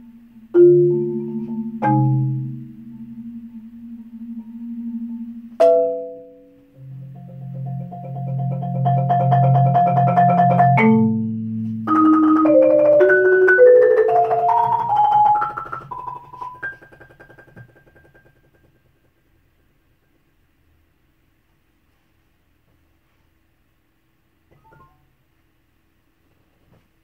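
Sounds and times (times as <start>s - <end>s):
marimba rolls: 0.5s - 18.8s.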